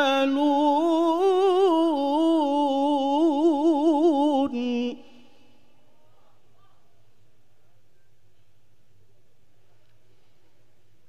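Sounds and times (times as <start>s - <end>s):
man reciting melodically: 0.0s - 5.3s.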